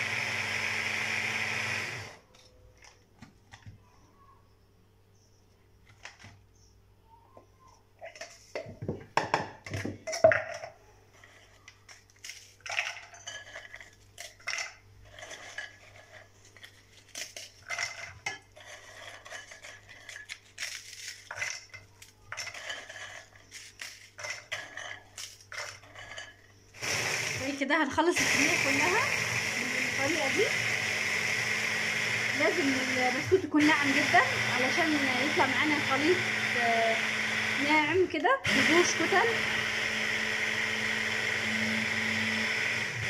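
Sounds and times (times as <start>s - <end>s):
biscuits snapping and clattering: 11.6s - 26.5s.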